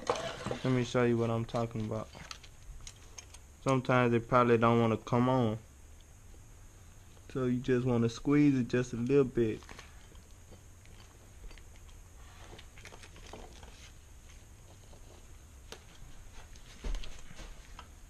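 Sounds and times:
metal parts clicking and tapping: 0:01.5 - 0:03.8.

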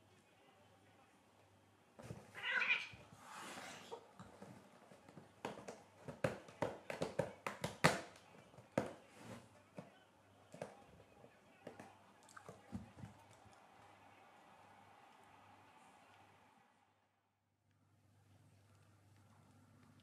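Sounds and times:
cat hissing: 0:02.3 - 0:04.0
cat crying: 0:02.4 - 0:03.0.

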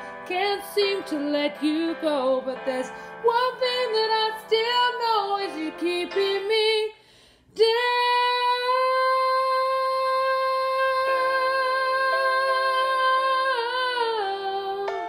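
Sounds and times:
woman singing a long high note: 0:07.6 - 0:15.0.

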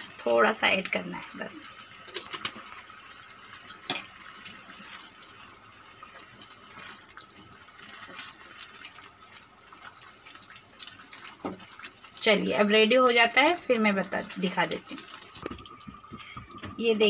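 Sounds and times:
spatula stirring sauce: 0:01.5 - 0:12.2
sauce bubbling and popping: 0:01.6 - 0:12.3, 0:14.2 - 0:16.8.

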